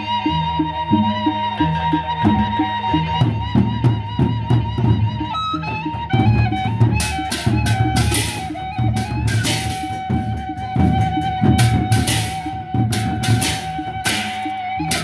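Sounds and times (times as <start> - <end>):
bamboo flute melody: 0.0 - 15.0
big drums beating: 2.2 - 15.0
hand cymbals clashing: 7.0 - 10.0, 11.6 - 15.0.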